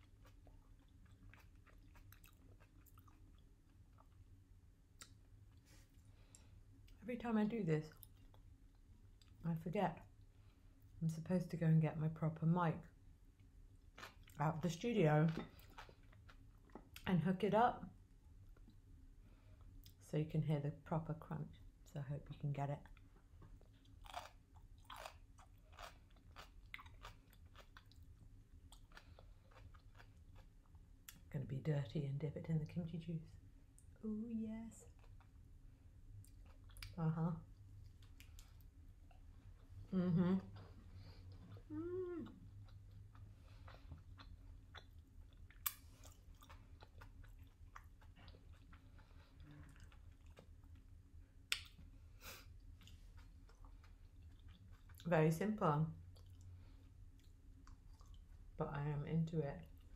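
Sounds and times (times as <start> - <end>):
chewing with crunches: 0.0 - 4.3, 15.2 - 17.1, 22.8 - 31.3, 40.4 - 51.8, 52.5 - 55.1, 56.0 - 58.6.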